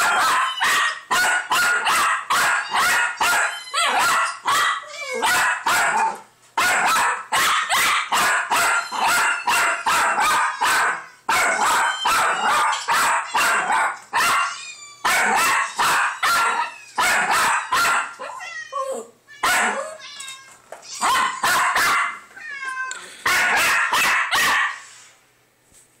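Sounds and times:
dog barking frantically: 0:00.0 - 0:18.4, 0:19.4 - 0:20.0, 0:21.0 - 0:22.3, 0:23.2 - 0:24.9
kittens meowing from speakers: 0:14.4 - 0:15.1.

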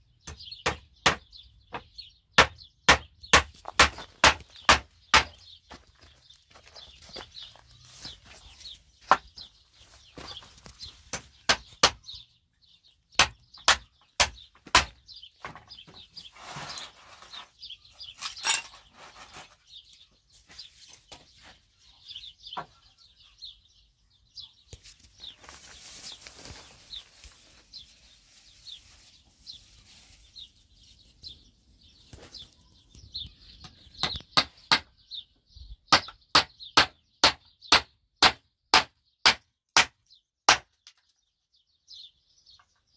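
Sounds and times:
faint birds chirping: 0:00.0 - 0:42.9
hammer striking wooden planks: 0:00.3 - 0:05.4, 0:13.2 - 0:15.6, 0:34.0 - 0:34.9, 0:35.9 - 0:41.0.

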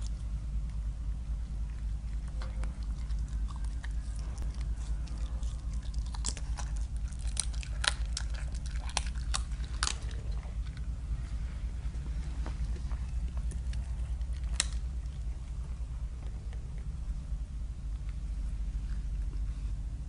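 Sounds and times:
animal chewing with crunches: 0:01.4 - 0:17.0.

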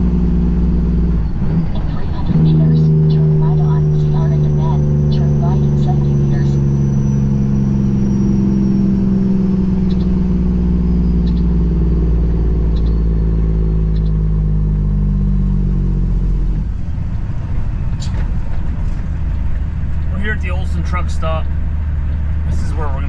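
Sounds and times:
diesel truck engine drone: 0:00.0 - 0:23.0.

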